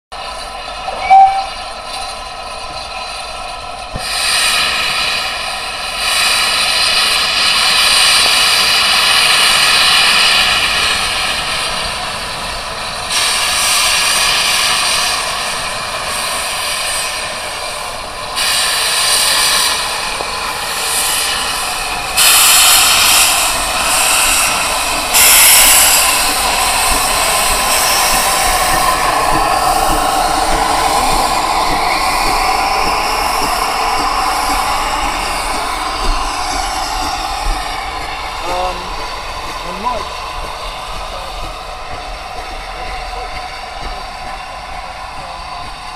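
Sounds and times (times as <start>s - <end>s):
steam hissing: 0.2s - 45.9s
short sharp high note: 0.9s - 1.6s.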